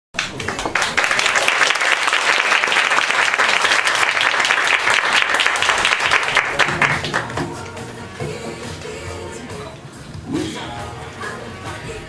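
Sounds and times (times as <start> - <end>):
audience applauding: 0.2 - 7.7.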